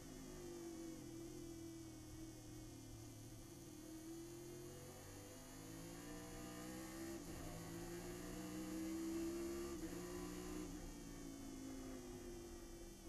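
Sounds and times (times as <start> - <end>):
race car engine drone: 4.7 - 13.0.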